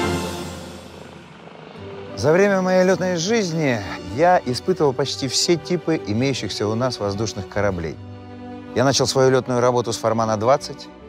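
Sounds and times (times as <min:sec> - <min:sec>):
low hum: 0:00.0 - 0:05.0
sustained music chord: 0:00.0 - 0:11.0.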